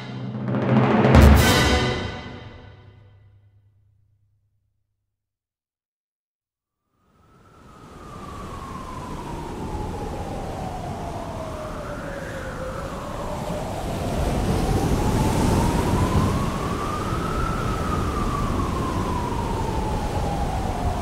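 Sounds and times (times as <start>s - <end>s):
wind noise: 7.5s - 21.0s.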